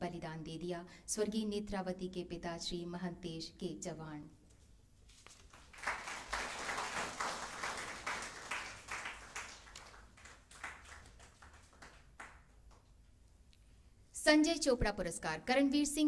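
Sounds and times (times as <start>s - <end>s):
audience applauding: 5.5s - 12.8s.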